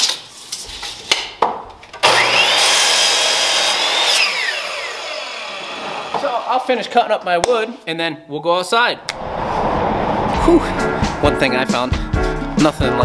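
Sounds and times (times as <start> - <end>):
miter saw whining: 2.0 - 6.5
saw blade cutting wood: 2.1 - 6.4.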